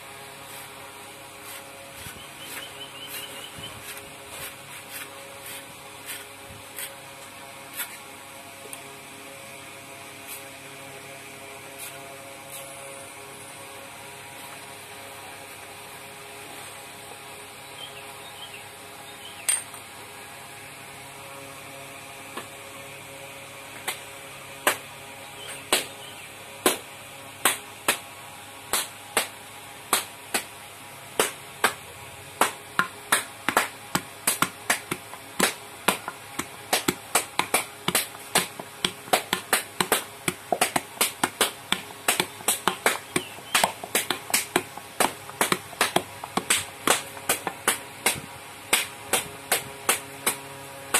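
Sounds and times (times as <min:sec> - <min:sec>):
steady low hum: 0:00.0 - 0:50.9
taps and clicks on clay: 0:32.4 - 0:50.4.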